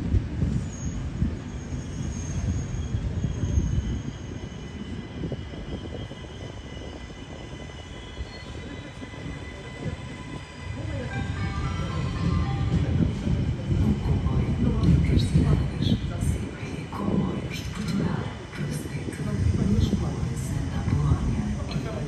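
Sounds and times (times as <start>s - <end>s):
train rumbling on rails: 0.0s - 22.0s
train wheel squeal: 0.4s - 13.2s.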